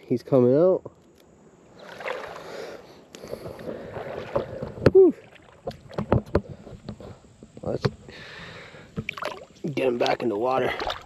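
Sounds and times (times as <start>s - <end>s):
water sloshing: 1.7s - 7.2s, 8.6s - 11.0s.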